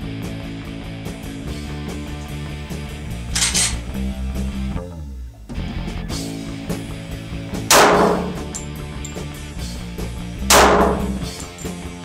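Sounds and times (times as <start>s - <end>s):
background music: 0.0s - 12.0s
pistol shots echoing: 7.7s - 8.6s, 10.5s - 11.4s.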